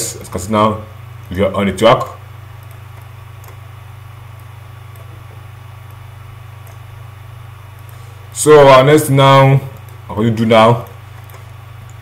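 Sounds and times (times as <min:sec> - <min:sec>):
low electrical hum: 0:00.0 - 0:12.0
faint clicks: 0:02.6 - 0:03.6, 0:04.4 - 0:05.1, 0:06.6 - 0:06.9.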